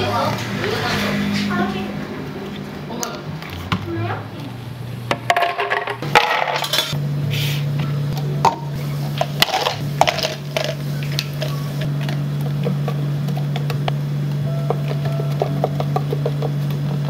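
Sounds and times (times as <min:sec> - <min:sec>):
low machine hum: 0:00.0 - 0:17.0
kitchenware clinking: 0:05.1 - 0:07.0.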